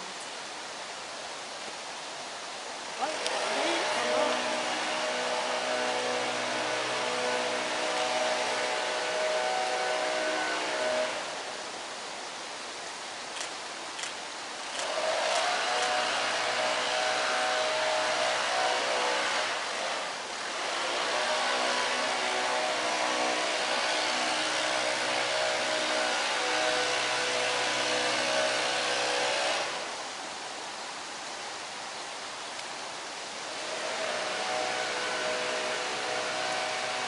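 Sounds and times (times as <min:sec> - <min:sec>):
motor humming: 0:03.0 - 0:11.4, 0:14.7 - 0:29.9, 0:33.6 - 0:37.0.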